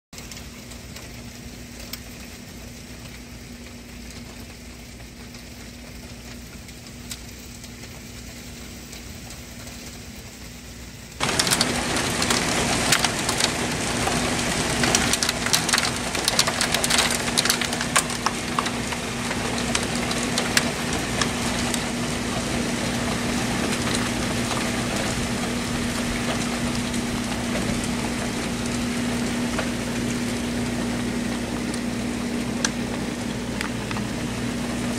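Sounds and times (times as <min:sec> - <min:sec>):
graupel pelting ground: 0:11.2 - 0:21.9.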